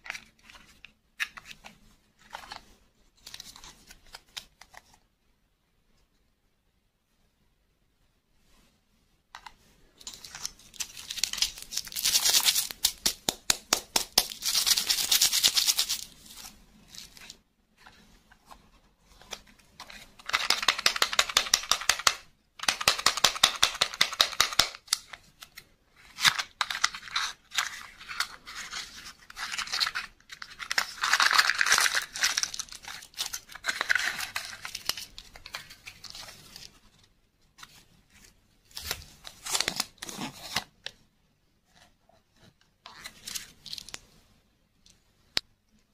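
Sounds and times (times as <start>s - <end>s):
plastic wrappers crinkling: 10.0s - 13.1s, 24.8s - 36.8s.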